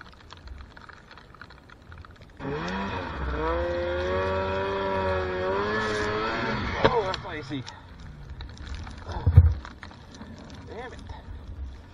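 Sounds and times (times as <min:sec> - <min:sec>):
sled plowing through powder snow: 0:02.4 - 0:07.1
snowmobile engine revving: 0:02.4 - 0:07.3.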